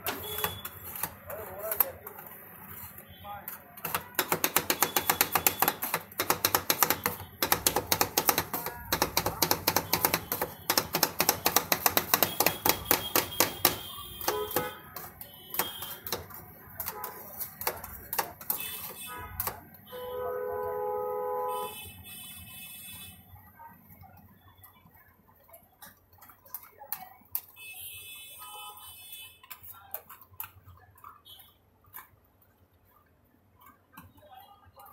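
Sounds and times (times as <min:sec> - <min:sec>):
metal spatula chopping on steel plate: 0:00.0 - 0:19.6.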